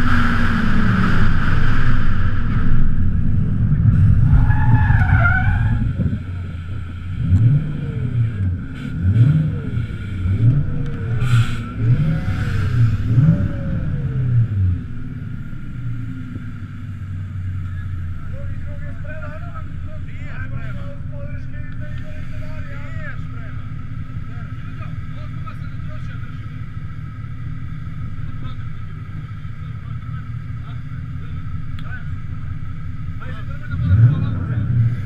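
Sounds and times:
car engine revving: 0.0 - 35.0
tyre squeal: 4.2 - 6.1.

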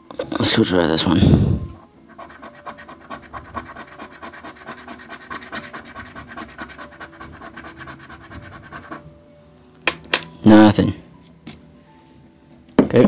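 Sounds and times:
coin scratching lottery ticket: 2.1 - 9.0.

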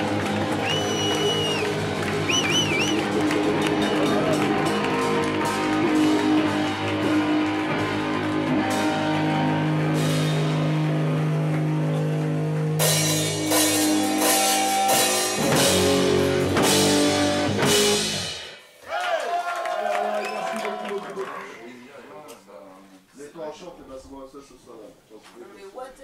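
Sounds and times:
held guitar and bass notes: 0.0 - 18.6
punk rock band playing: 0.0 - 18.6.

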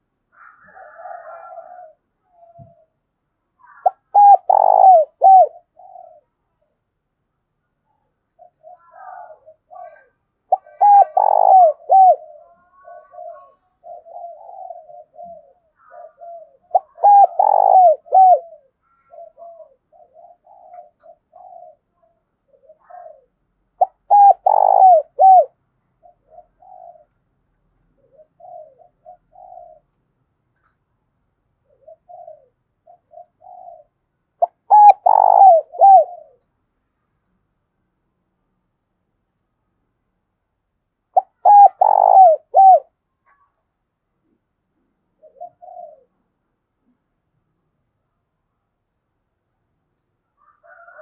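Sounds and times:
dove cooing: 0.0 - 3.0, 3.6 - 6.8, 8.0 - 30.0, 31.6 - 36.5, 41.2 - 43.5, 45.1 - 47.0, 50.4 - 51.0.

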